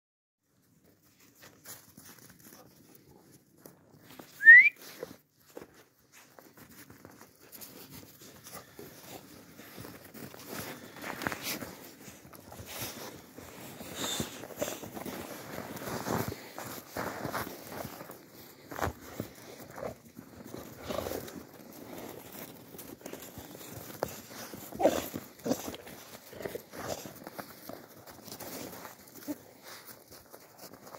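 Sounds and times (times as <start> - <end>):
footsteps crunching in snow: 1.0 - 30.9
person whistling: 4.4 - 5.0.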